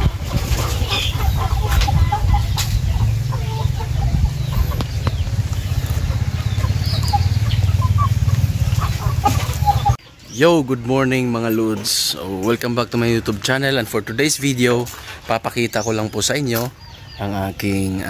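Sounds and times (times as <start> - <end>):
chickens clucking: 0.0 - 18.0
steady low rumble: 1.9 - 10.0.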